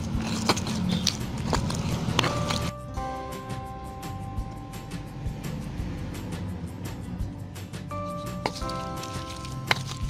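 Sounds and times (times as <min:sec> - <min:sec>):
stone pestle scraping in mortar: 0:00.0 - 0:02.7, 0:08.0 - 0:10.0
background music with held notes: 0:00.0 - 0:10.0.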